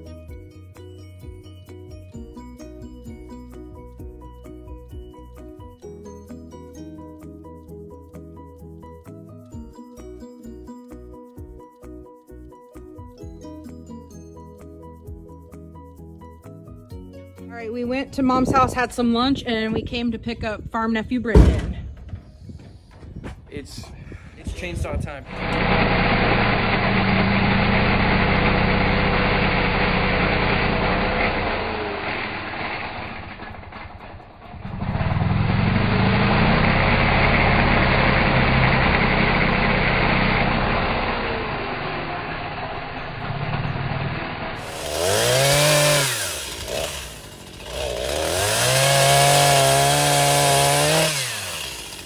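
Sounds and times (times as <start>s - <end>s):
chainsaw revving: 25.2s - 52.0s
chainsaw cutting under load: 25.3s - 52.0s.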